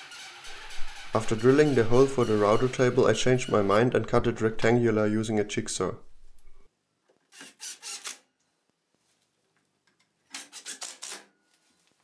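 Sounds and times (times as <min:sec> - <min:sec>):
rasping scraping noise: 0:00.0 - 0:04.7.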